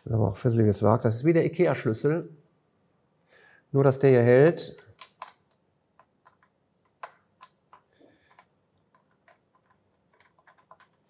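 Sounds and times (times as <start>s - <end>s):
allen key clicking on screws: 4.5s - 5.6s.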